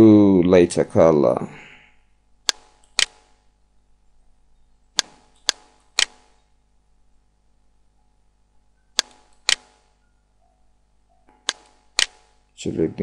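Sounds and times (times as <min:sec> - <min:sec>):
computer mouse clicking: 0:02.5 - 0:03.3, 0:05.0 - 0:06.4, 0:09.0 - 0:09.8, 0:11.3 - 0:12.3.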